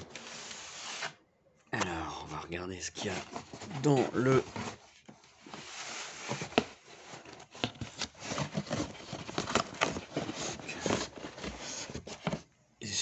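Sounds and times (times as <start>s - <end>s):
cardboard and paper crackling: 2.9s - 12.5s
cardboard box tearing open: 7.7s - 12.3s.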